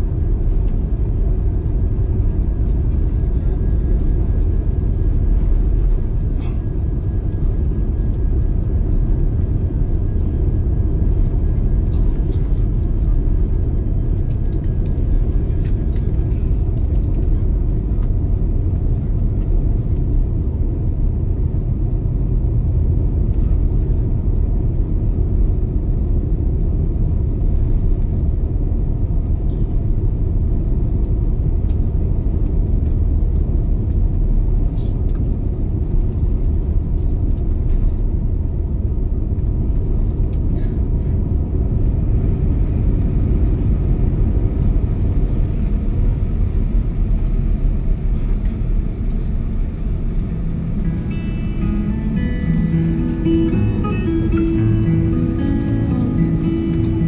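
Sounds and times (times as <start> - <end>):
aircraft cabin low rumble: 0.0 - 57.0
faint high tone: 50.8 - 57.0.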